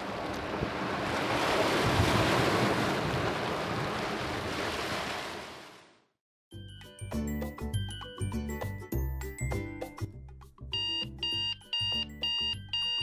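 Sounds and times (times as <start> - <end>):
waves lapping: 0.0 - 6.0.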